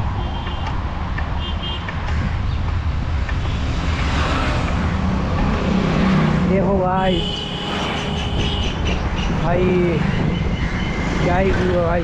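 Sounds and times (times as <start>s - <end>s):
passing traffic: 0.0s - 12.0s
wind on microphone: 1.9s - 6.6s, 8.0s - 12.0s.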